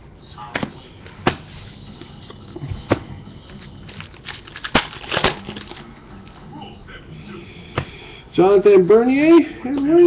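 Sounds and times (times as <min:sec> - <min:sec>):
packaging snapping: 0:03.9 - 0:05.8.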